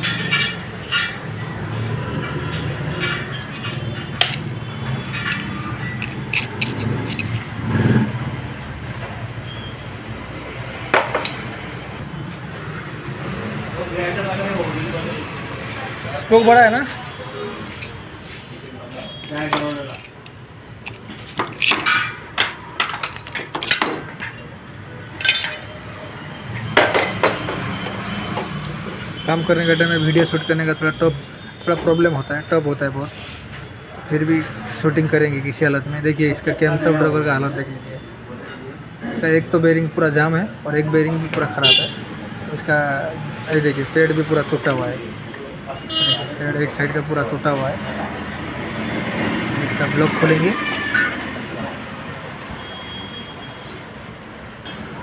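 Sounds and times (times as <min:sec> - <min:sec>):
hand tool clinking on metal: 0:00.0 - 0:08.0, 0:19.3 - 0:24.5, 0:25.1 - 0:25.8
metal scrape or rattle: 0:05.0 - 0:08.1.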